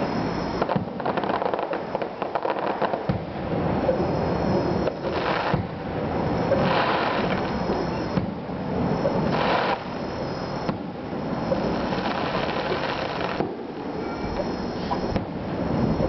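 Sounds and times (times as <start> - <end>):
distant fireworks crackling: 0.0 - 16.0
muffled firework pops: 0.6 - 4.0, 4.6 - 5.8, 6.5 - 8.4, 10.6 - 10.9, 11.5 - 13.6, 14.4 - 15.4.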